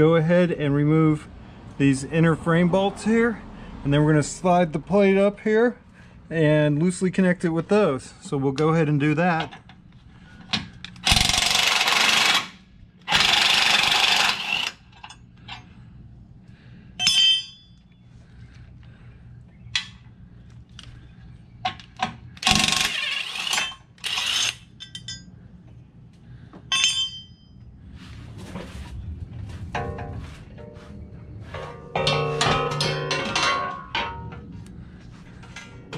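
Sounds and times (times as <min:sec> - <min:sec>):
pneumatic impact wrench: 0:11.0 - 0:14.9, 0:22.4 - 0:24.7
metallic clinks of bolts and tools: 0:17.0 - 0:17.9, 0:22.6 - 0:25.3, 0:26.7 - 0:27.5, 0:31.6 - 0:34.5.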